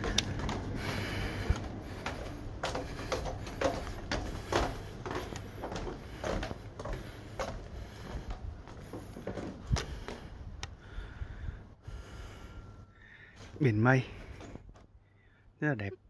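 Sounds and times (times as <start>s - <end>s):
footsteps on wooden planks: 0.0s - 11.1s
low steady rumble: 0.0s - 13.0s.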